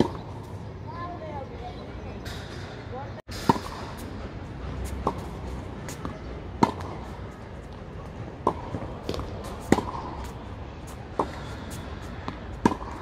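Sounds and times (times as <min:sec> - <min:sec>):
tennis ball bouncing on court: 0:03.3 - 0:04.1, 0:04.8 - 0:07.8, 0:08.4 - 0:13.0
tennis ball hitting racket: 0:03.3 - 0:04.1, 0:04.8 - 0:07.4, 0:08.4 - 0:13.0.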